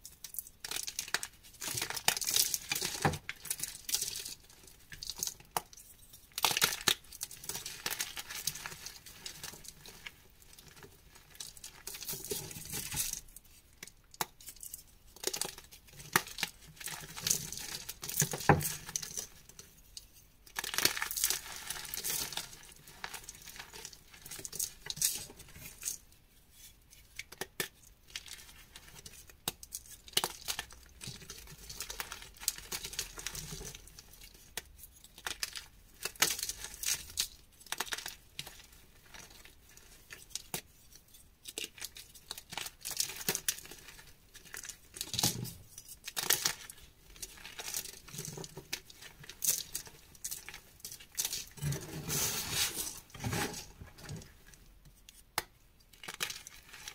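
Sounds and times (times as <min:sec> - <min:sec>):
hands crushing chalk blocks: 0:27.1 - 0:40.7
powder sifting through fingers: 0:51.5 - 0:54.3.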